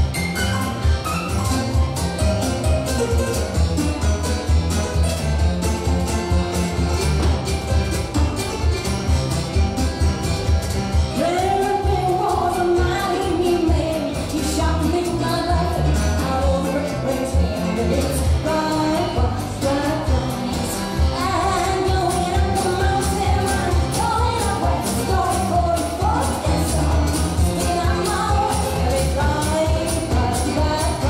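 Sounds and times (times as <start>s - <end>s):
drums with steady beat: 0.0s - 14.9s, 19.4s - 31.0s
woman singing into microphone: 11.2s - 31.0s.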